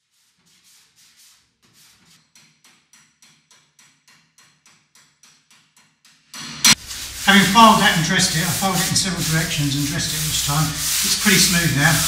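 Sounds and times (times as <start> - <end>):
hand file rasping on sheet metal: 0.0 - 2.6, 6.7 - 12.0.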